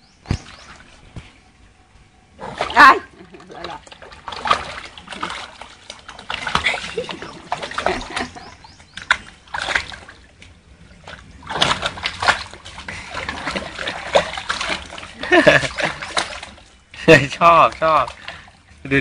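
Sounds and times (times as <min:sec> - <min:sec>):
dog splashing in water: 0:02.5 - 0:16.8.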